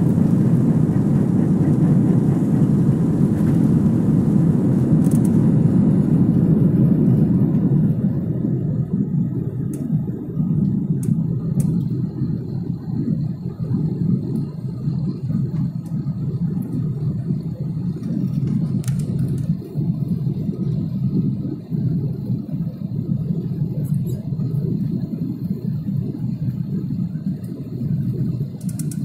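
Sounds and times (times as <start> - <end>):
airplane engines rumbling: 0.0 - 29.0
rushing air: 0.0 - 29.0.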